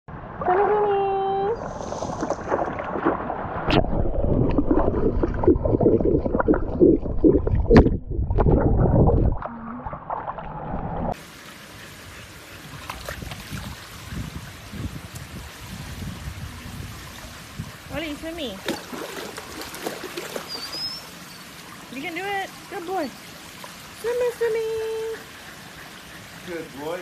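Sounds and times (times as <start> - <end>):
steady hiss of water: 11.1 - 27.0
dog paddling in water: 17.9 - 26.6.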